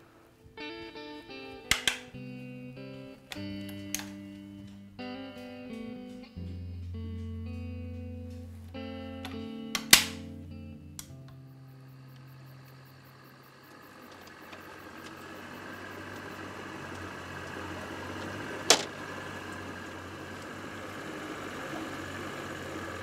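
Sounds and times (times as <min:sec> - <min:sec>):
sharp click: 0:01.6 - 0:02.3, 0:03.3 - 0:10.4
boat motor idling: 0:03.0 - 0:23.0.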